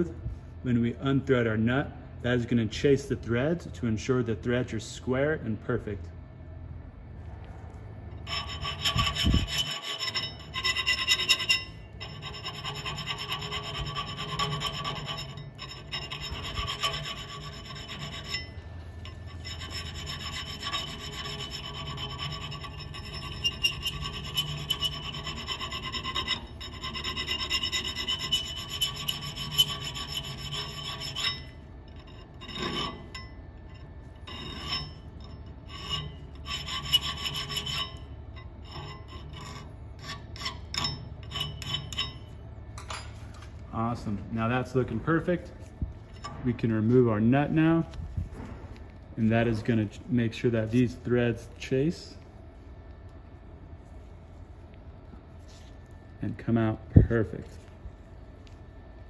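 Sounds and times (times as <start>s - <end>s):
hand file rasping on steel: 8.2s - 42.3s.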